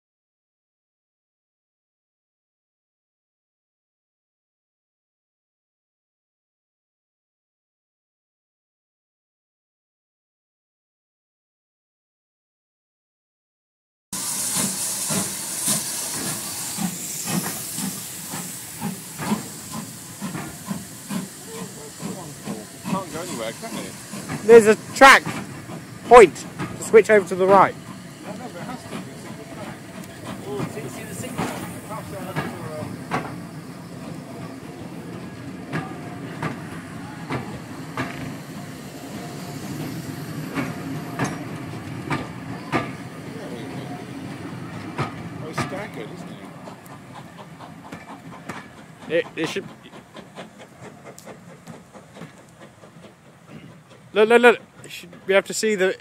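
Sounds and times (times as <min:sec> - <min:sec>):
steam hissing: 0:14.2 - 0:56.0
train coaches knocking on track: 0:14.2 - 0:56.0.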